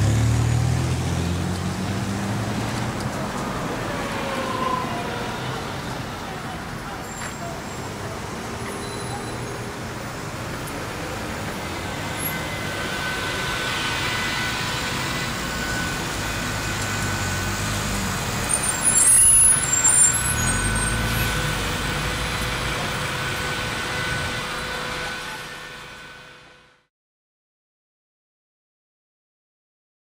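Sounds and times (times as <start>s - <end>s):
model trams running: 0.0s - 26.8s
high squeals and clatter: 1.6s - 26.6s.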